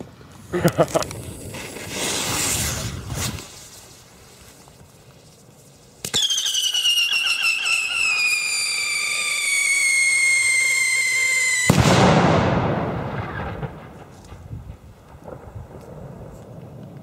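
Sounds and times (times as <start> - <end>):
firecracker whistling: 1.3 - 4.6, 5.2 - 14.0
firecracker bang: 10.4 - 15.6.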